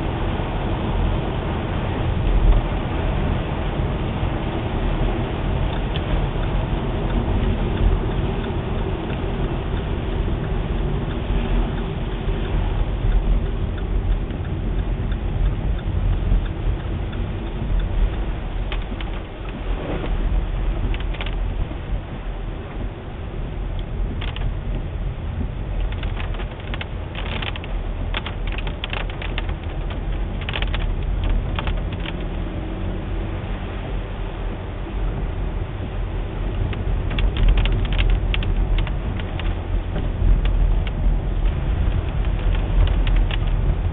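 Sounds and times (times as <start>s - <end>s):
car engine and tyre rumble: 0.0s - 43.9s
clicks and rattles: 18.6s - 19.6s, 20.8s - 21.4s, 24.2s - 24.6s, 25.8s - 32.4s, 36.7s - 43.8s.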